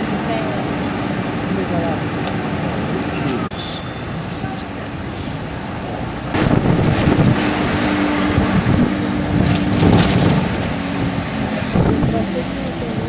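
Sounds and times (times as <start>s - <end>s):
bus engine drone: 0.0s - 13.0s
wind buffeting microphone: 4.7s - 13.0s.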